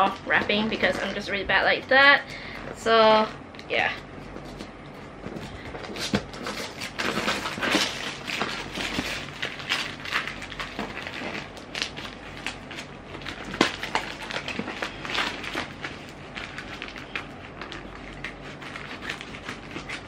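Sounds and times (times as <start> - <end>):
wrapping paper ripping and crinkling: 5.8 - 20.0.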